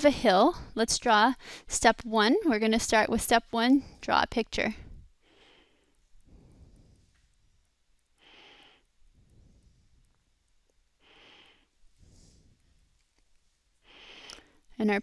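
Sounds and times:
faint breathing: 0:01.4 - 0:01.7, 0:04.7 - 0:13.0, 0:13.8 - 0:14.8.

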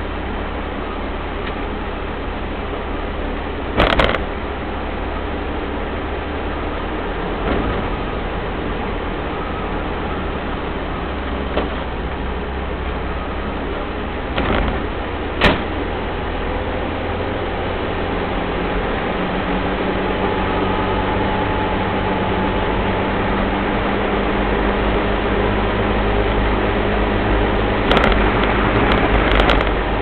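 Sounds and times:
diesel engine running: 0:00.0 - 0:30.0
road noise: 0:00.0 - 0:30.0
sharp click: 0:03.8 - 0:04.2, 0:27.9 - 0:29.8.

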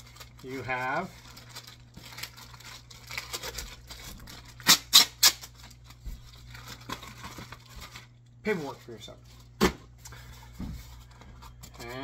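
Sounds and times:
sharp plastic crinkles: 0:00.0 - 0:09.6
plastic packaging rustling: 0:00.0 - 0:12.0.

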